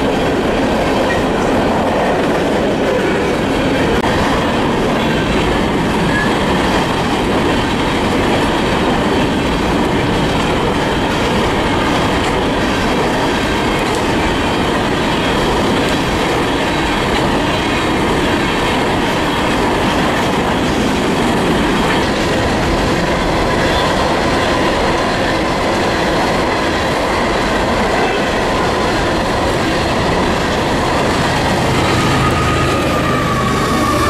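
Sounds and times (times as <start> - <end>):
diesel locomotive engine drone: 0.0 - 34.0
train wheels rumbling on rails: 0.0 - 34.0.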